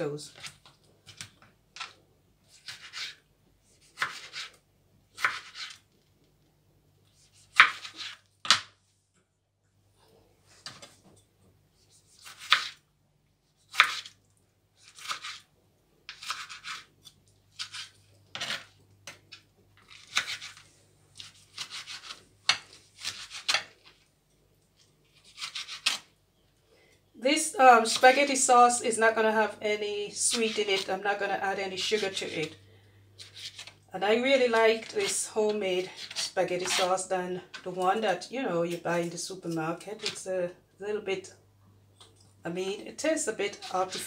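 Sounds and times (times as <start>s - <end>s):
knife slicing tomatoes on board: 2.5s - 3.2s, 3.8s - 4.6s, 5.2s - 5.8s, 7.1s - 8.7s, 11.8s - 12.8s, 13.6s - 14.2s, 16.1s - 20.6s, 21.2s - 23.8s, 35.9s - 36.9s.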